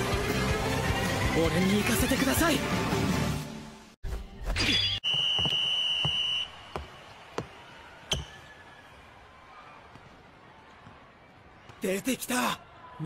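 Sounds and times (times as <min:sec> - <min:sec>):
sneaker squeak: 0:04.5 - 0:06.9, 0:08.1 - 0:08.6
referee's whistle: 0:04.6 - 0:06.7
sneaker footsteps on hardwood: 0:05.1 - 0:07.5.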